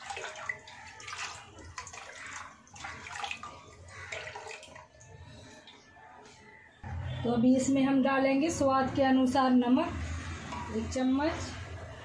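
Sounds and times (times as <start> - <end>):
buttermilk pouring and splashing: 0.0 - 5.9.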